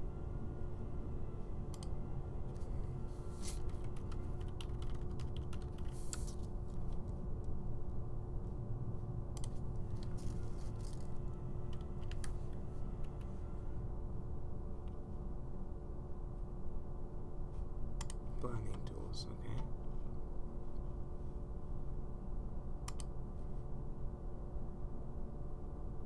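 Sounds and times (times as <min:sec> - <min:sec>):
steady low hum: 0:00.0 - 0:26.0
computer keyboard typing: 0:03.5 - 0:07.1, 0:09.4 - 0:10.1, 0:11.7 - 0:12.4.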